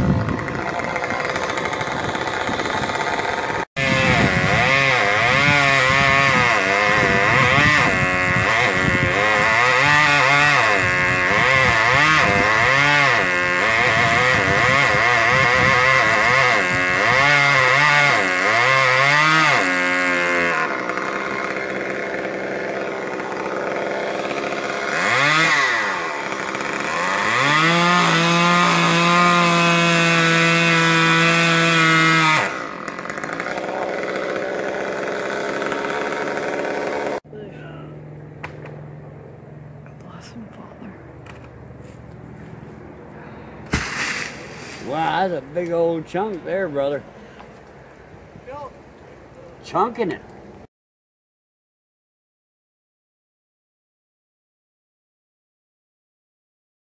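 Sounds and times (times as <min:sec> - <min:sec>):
chainsaw cutting wood: 0:00.0 - 0:37.3, 0:38.4 - 0:39.0, 0:39.8 - 0:42.1, 0:43.6 - 0:47.8.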